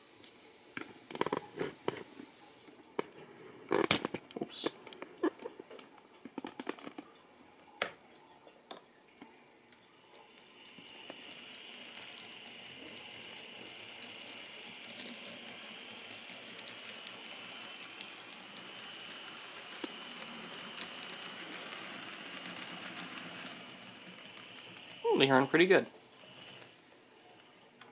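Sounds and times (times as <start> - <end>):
wheel hiss: 0.0 - 2.8, 10.0 - 27.9
model train motor whine: 10.0 - 27.9.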